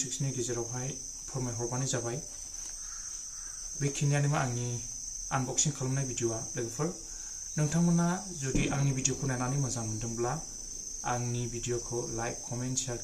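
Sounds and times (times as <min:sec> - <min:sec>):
high-pitched insect drone: 0:00.0 - 0:13.0
man talking: 0:07.6 - 0:13.0.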